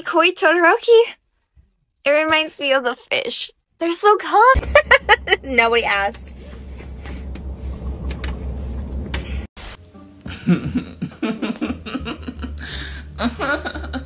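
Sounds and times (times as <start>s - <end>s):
young man laughing: 4.6s - 5.5s, 10.3s - 14.0s
background music: 9.8s - 14.0s.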